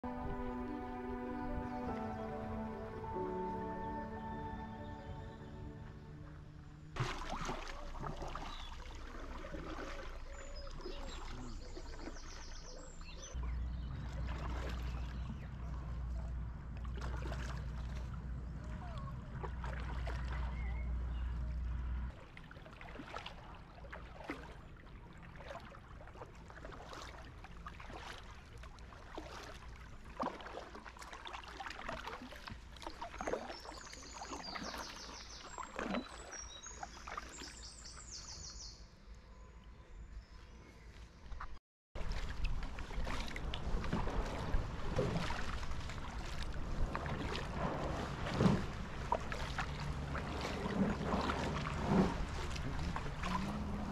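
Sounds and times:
water splashes and drips: 0.0s - 4.1s, 6.9s - 38.2s, 41.0s - 53.9s
steady low rumble: 0.0s - 7.0s, 13.3s - 22.2s, 42.0s - 53.9s
kayak paddle pulling through water: 1.4s - 38.6s, 40.3s - 53.9s
bird chirps: 33.5s - 41.0s.

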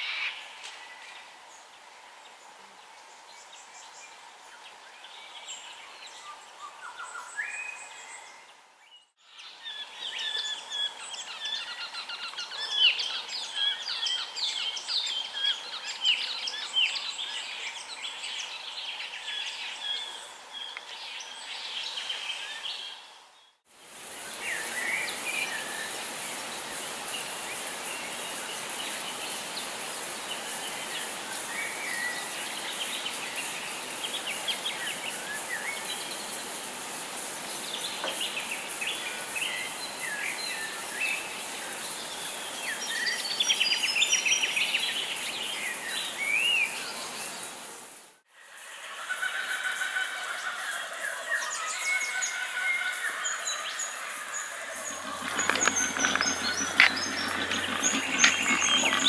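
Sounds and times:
forest birds chirping and whistling: 5.1s - 23.6s.

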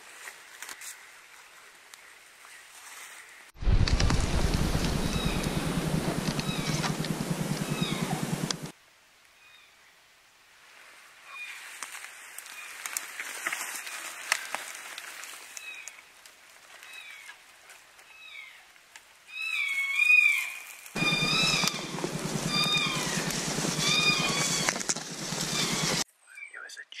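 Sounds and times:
brush snapping and rustling: 3.6s - 8.7s, 11.7s - 17.8s, 20.7s - 26.0s.

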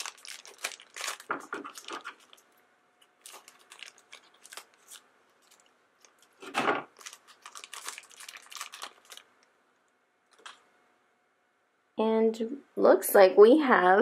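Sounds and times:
plastic bag crinkling: 0.0s - 9.6s, 10.2s - 10.7s.

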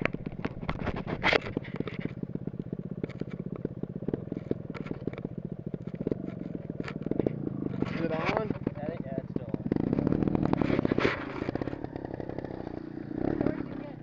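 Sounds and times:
sharp knocks and scrapes: 0.0s - 2.2s, 4.1s - 9.1s, 10.0s - 11.8s
dirt bike engine idling: 0.0s - 14.0s.

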